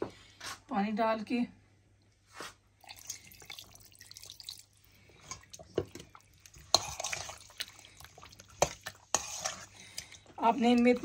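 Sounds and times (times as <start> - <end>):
hand mixing with wet splashing: 2.5 - 11.0
water pouring into steel bowl: 2.8 - 10.1.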